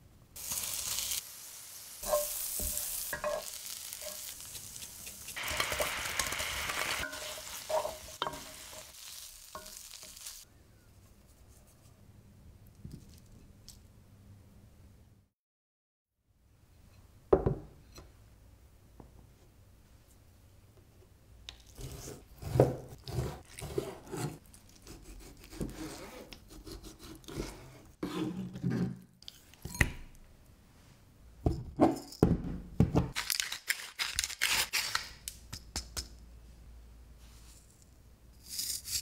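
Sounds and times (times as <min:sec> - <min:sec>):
pepper grinder grinding: 0:02.0 - 0:10.2.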